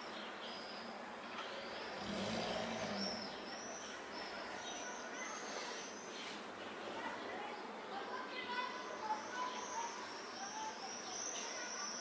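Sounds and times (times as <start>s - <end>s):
small birds chirping: 0.0s - 12.0s
distant traffic hum: 0.9s - 5.6s.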